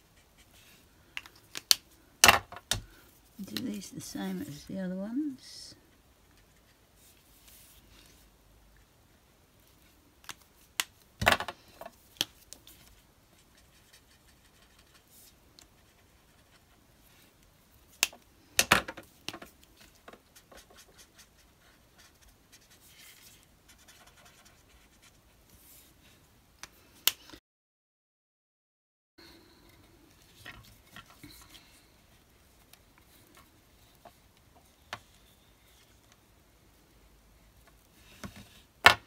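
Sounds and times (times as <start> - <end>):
marker scratching on paper: 20.4 - 25.2.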